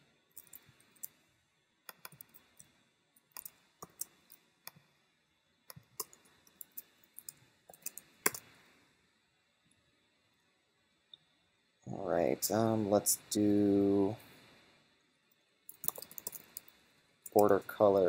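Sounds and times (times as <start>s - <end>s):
mouse clicks: 1.9s - 2.4s, 5.7s - 8.5s, 15.7s - 16.7s
computer keyboard typing: 1.9s - 2.5s, 3.3s - 4.2s, 5.7s - 8.4s, 15.7s - 16.7s, 17.3s - 17.6s.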